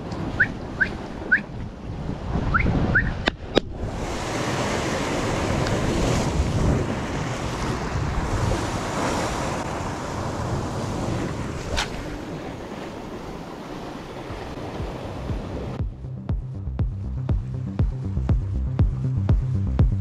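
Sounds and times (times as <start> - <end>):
sea waves washing against rocks: 0.0 - 15.8
wind buffeting microphone: 0.0 - 16.0.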